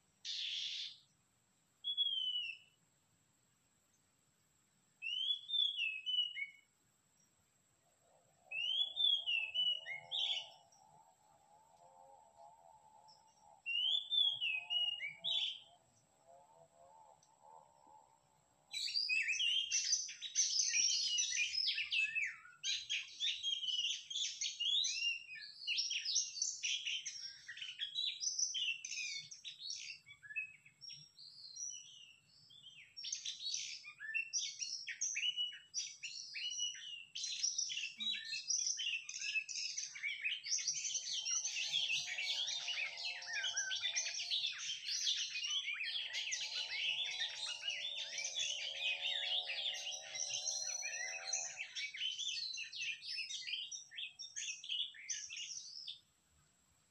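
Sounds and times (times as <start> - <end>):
bird whistles and chirps: 0.2 - 1.0, 1.8 - 2.8, 5.0 - 6.7, 8.5 - 10.6, 13.6 - 15.8, 18.7 - 56.0.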